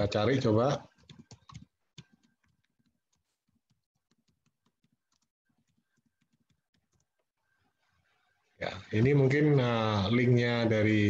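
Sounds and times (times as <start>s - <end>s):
faint keyboard typing: 0.7s - 8.2s.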